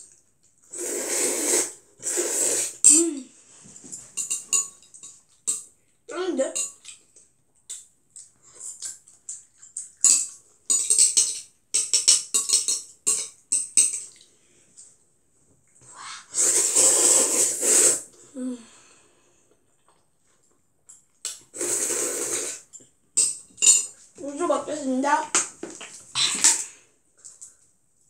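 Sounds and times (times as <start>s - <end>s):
noisy slurp of noodles: 0.6s - 2.9s, 16.2s - 18.2s, 21.5s - 22.7s
chewing and mouth smacks: 6.8s - 10.4s.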